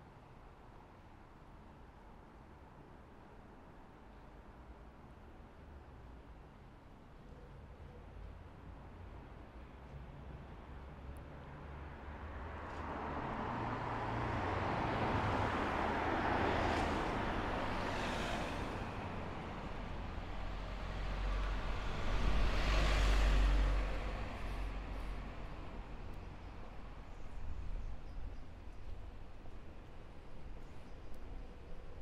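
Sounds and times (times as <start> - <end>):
vehicle passing by: 11.5 - 26.4
heavy vehicle deep rumble: 18.0 - 26.4.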